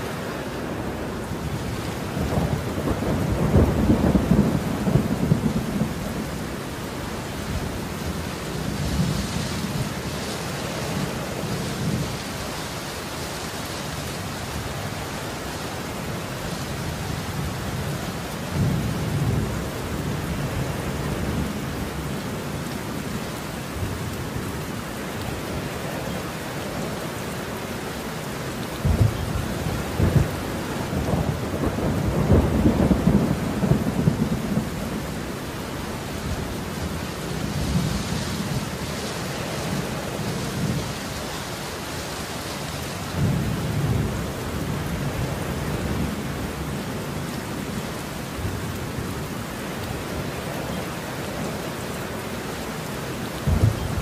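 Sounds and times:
steady rain: 0:00.0 - 0:54.0
thunder rumbling: 0:00.8 - 0:10.2, 0:28.8 - 0:41.0, 0:53.4 - 0:54.0
thunder crack: 0:53.5 - 0:54.0.

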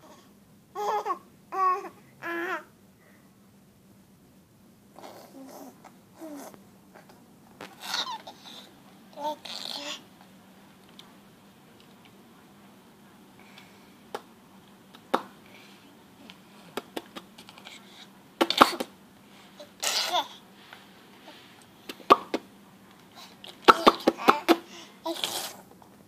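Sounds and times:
baby giggling and squealing: 0:07.8 - 0:10.0, 0:19.7 - 0:20.4.

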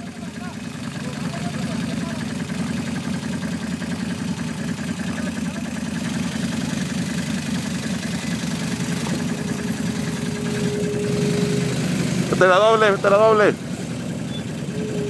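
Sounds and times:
atv engine idling: 0:00.0 - 0:15.0.

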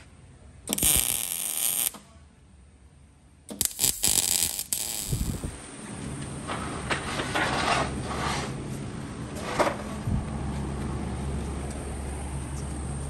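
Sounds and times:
welding crackling hiss: 0:00.7 - 0:02.0, 0:03.5 - 0:05.6.

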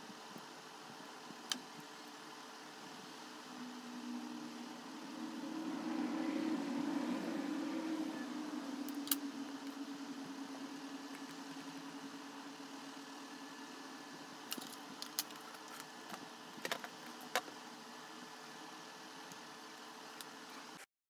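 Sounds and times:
low steady hum: 0:00.0 - 0:20.8.

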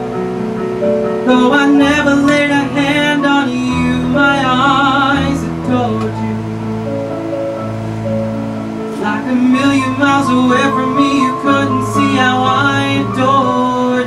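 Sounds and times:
instrumental accompaniment: 0:00.0 - 0:14.0
man singing slow ballad: 0:01.2 - 0:06.5, 0:08.9 - 0:14.0.

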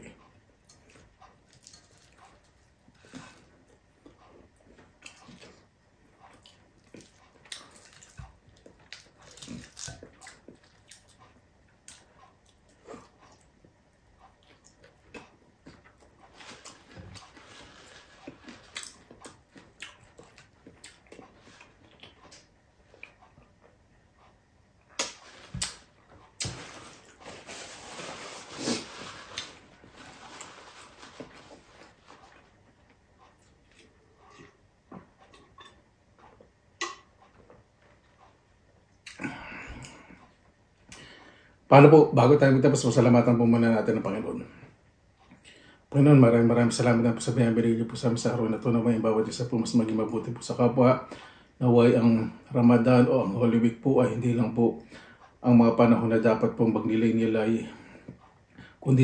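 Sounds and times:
chewing and lip smacks: 0:04.0 - 0:17.4, 0:18.1 - 0:23.7
soft crunches: 0:14.8 - 0:23.2, 0:25.0 - 0:32.6
paper napkin rustling: 0:26.4 - 0:32.4.

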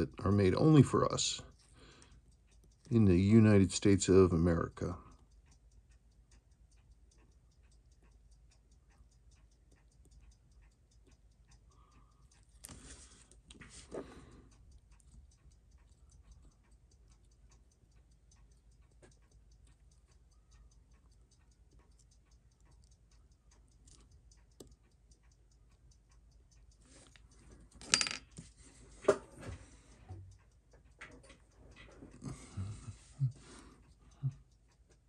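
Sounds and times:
watch ticking: 0:00.0 - 0:35.0.

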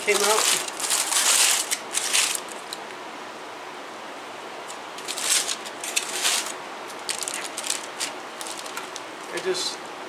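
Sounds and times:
aluminium foil crinkling: 0:00.0 - 0:02.8, 0:05.0 - 0:09.6
steady background hiss: 0:00.0 - 0:10.0.

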